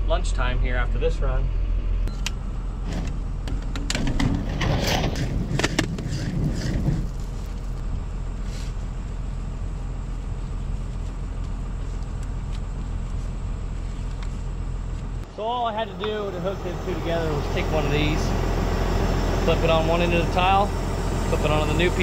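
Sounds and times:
low engine hum: 0.0s - 22.0s
plastic pipe scraping and knocking: 2.9s - 7.6s.

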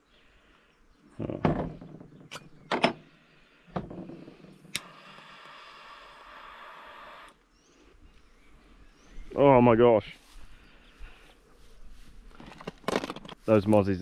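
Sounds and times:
lighter igniting click: 4.7s - 5.6s
torch flame hissing: 4.7s - 7.4s.

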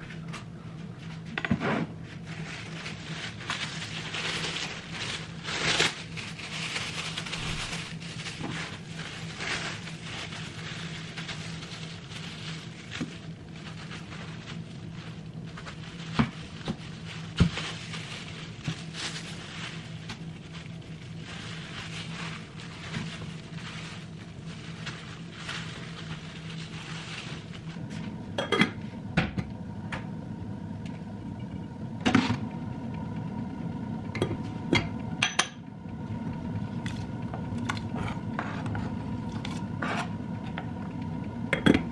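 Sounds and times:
plastic wrap crinkling: 0.0s - 29.0s.

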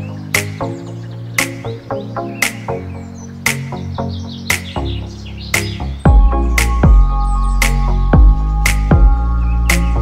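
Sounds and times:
background music with steady beat: 0.0s - 10.0s.

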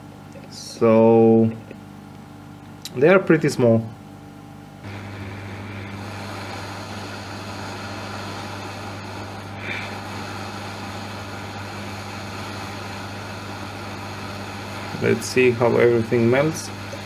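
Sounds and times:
hot air blower hissing: 4.8s - 17.0s.

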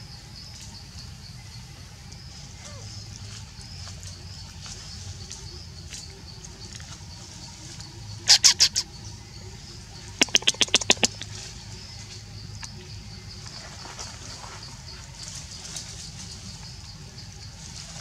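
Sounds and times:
sharp chirps of small animal: 8.1s - 9.1s, 10.0s - 11.5s.

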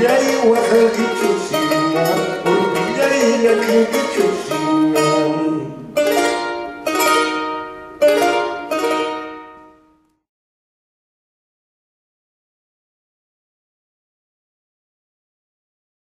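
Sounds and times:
charango plucked melody: 0.0s - 10.2s
charango strummed chords: 0.0s - 10.2s.

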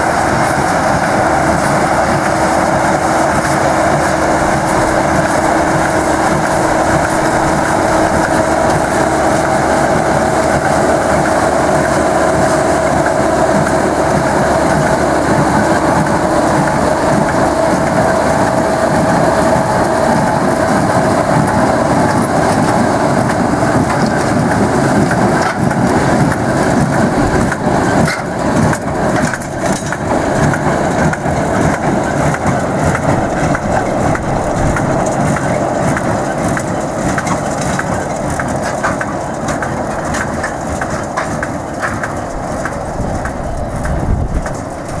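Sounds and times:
baler machinery clatter: 0.0s - 45.0s
sharp clicks and knocks: 21.3s - 45.0s.

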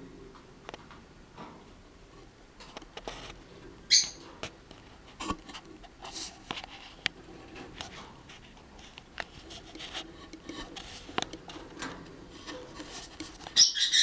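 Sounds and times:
bird chirp: 13.5s - 14.0s.

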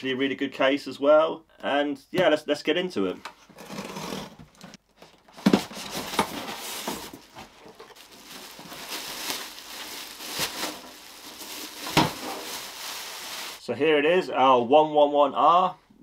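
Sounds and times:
cardboard scraping and rustling: 3.5s - 13.6s.

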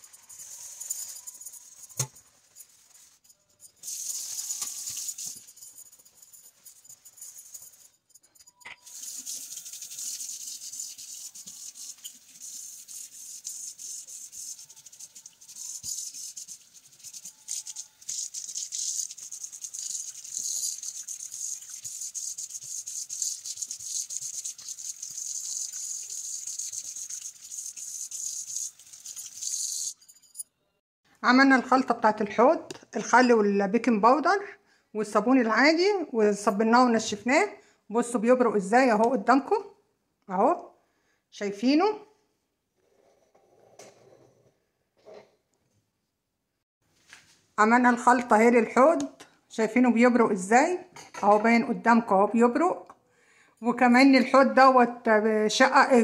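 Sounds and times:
sponge scrubbing steel sink: 3.8s - 7.8s, 8.8s - 29.9s.

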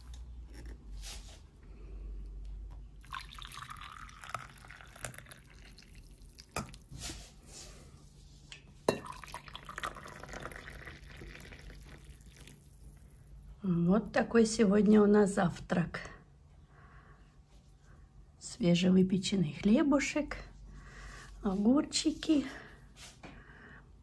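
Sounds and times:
liquid pouring and dripping: 3.0s - 7.0s, 8.9s - 13.4s.

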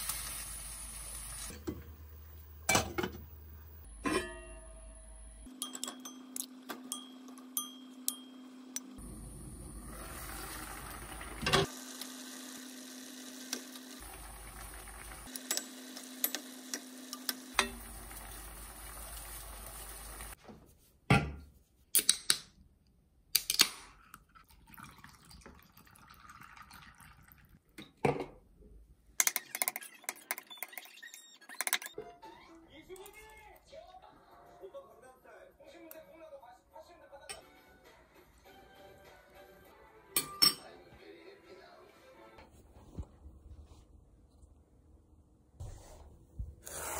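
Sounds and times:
pan bubbling and hissing: 9.0s - 11.7s, 14.0s - 15.4s.

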